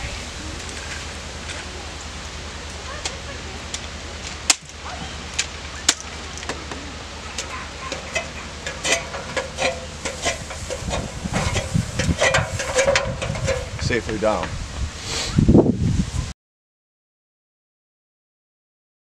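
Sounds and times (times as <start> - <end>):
steady low hum: 0.0 - 16.3
knocks and scrapes of climbing: 7.4 - 15.4.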